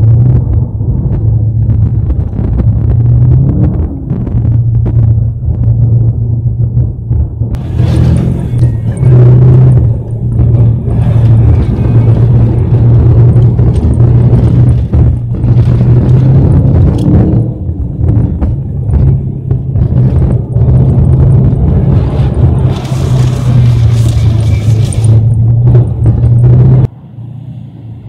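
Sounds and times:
car engine drone: 0:00.0 - 0:28.0
tyre rumble over ice: 0:19.8 - 0:26.5.

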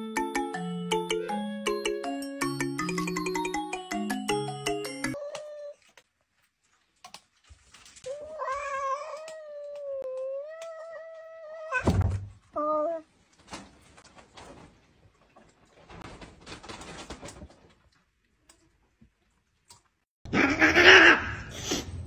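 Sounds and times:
cat meowing: 0:08.1 - 0:11.9.

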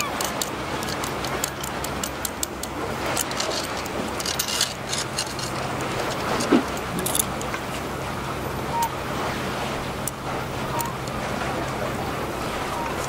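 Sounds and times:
sea waves: 0:00.0 - 0:13.0
wind: 0:00.0 - 0:13.0
fishing tackle clicking: 0:00.1 - 0:07.6.

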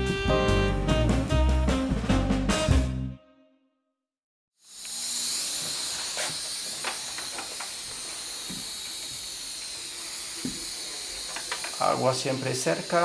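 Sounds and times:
gas torch hissing: 0:04.6 - 0:13.0.

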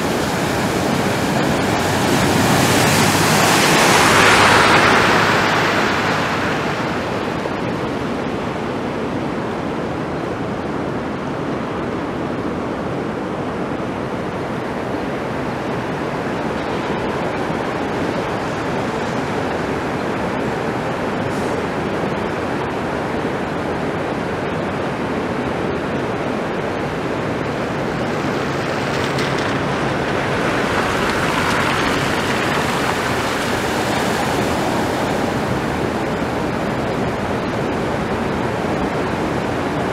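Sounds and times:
water splashing from tyres: 0:00.0 - 0:08.1, 0:27.2 - 0:39.9
floodwater rushing: 0:00.0 - 0:39.9
vehicle engine hum: 0:00.0 - 0:39.9.

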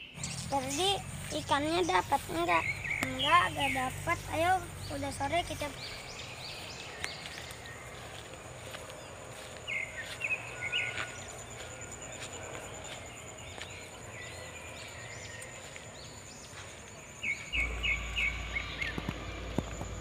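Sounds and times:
bird chirping: 0:00.0 - 0:20.0
low rumble: 0:17.4 - 0:20.0.

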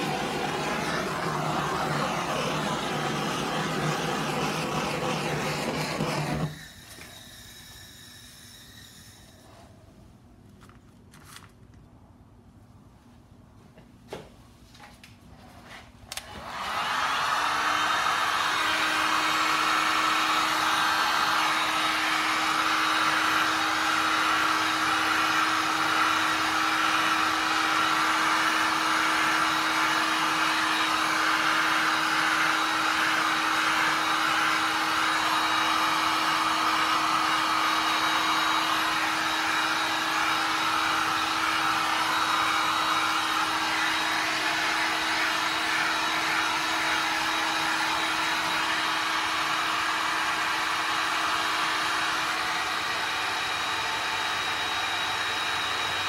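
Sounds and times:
heat gun air rushing: 0:00.0 - 0:09.8.

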